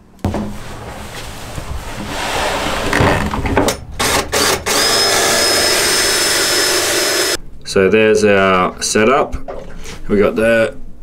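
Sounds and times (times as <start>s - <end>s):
handling noise scraping and knocking: 0.2s - 4.4s.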